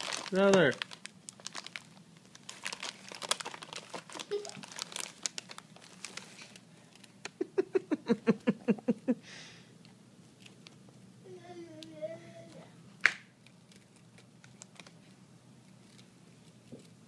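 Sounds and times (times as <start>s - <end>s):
plastic snack bag crinkling: 0.0s - 7.2s, 13.4s - 17.0s.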